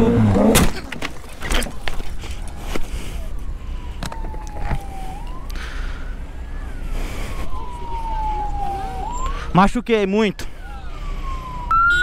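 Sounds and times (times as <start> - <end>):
emergency siren wailing: 2.4 - 12.0.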